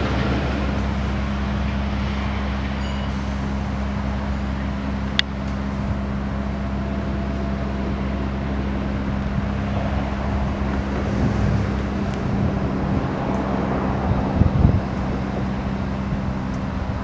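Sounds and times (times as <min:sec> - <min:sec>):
diesel engine droning: 0:00.0 - 0:17.0
sharp metallic clink: 0:02.8 - 0:03.2.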